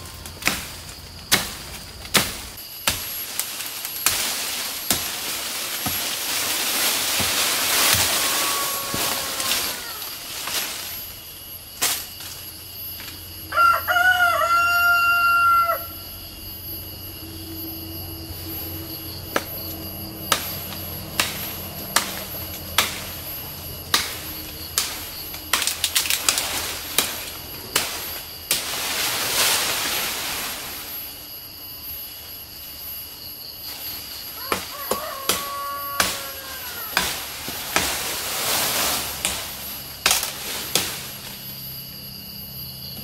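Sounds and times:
knife chopping branches: 0:00.1 - 0:08.3, 0:20.3 - 0:28.8, 0:34.4 - 0:38.2, 0:39.2 - 0:41.2
rooster crowing: 0:07.8 - 0:10.3, 0:13.4 - 0:16.3, 0:34.3 - 0:37.9.

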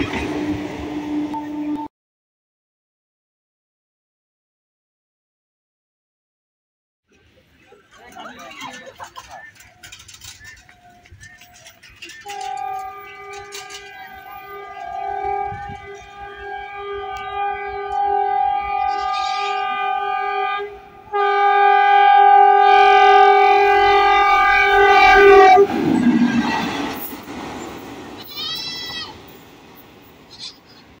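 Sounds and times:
train horn blasts: 0:00.0 - 0:01.9, 0:12.2 - 0:27.0
train passing: 0:00.0 - 0:01.9, 0:07.2 - 0:31.0.

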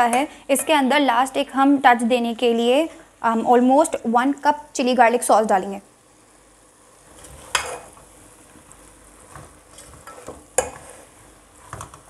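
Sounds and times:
meat sizzling: 0:05.9 - 0:12.0
spatula scraping metal pot: 0:09.7 - 0:11.2.

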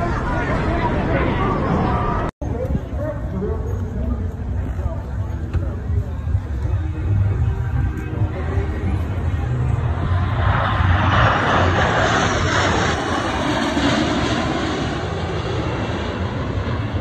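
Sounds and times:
jets flying past: 0:09.3 - 0:17.0.

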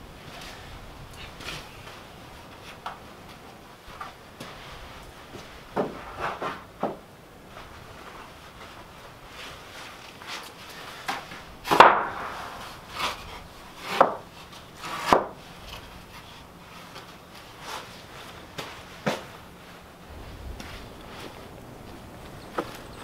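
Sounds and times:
wooden boards knocking: 0:05.8 - 0:07.0, 0:11.7 - 0:12.6, 0:13.9 - 0:14.3, 0:15.0 - 0:15.4.

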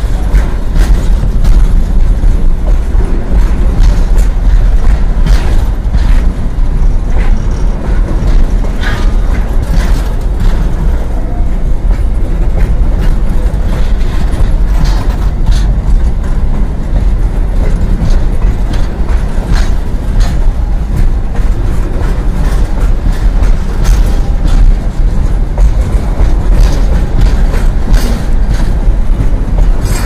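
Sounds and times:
freight train rumbling past: 0:00.0 - 0:30.0
wheels clicking over rail joints: 0:00.0 - 0:30.0.

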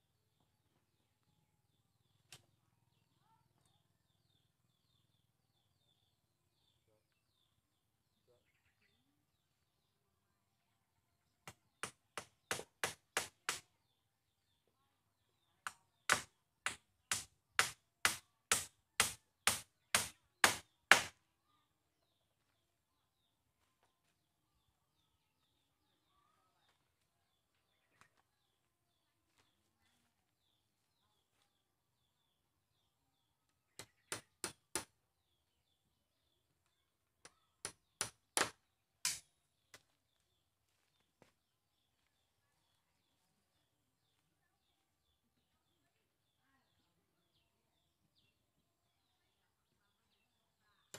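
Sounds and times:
small birds chirping: 0:00.0 - 0:50.9
hammer strikes on bamboo: 0:11.4 - 0:13.7, 0:15.7 - 0:21.2, 0:33.8 - 0:34.9, 0:37.2 - 0:39.8
tool knocking bamboo poles: 0:15.7 - 0:21.1.

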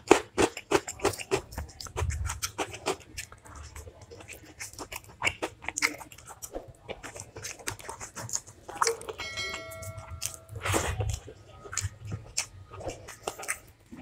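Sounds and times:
wet mouth clicks and chewing: 0:00.0 - 0:14.0
utensil clinking on dish: 0:08.9 - 0:10.9.

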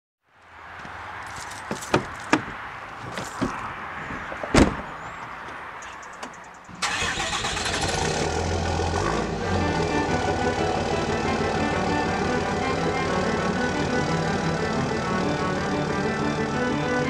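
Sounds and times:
sharp knocks: 0:01.6 - 0:04.9
heavy thump: 0:01.7 - 0:04.9
pickup truck engine starting: 0:06.7 - 0:17.0.

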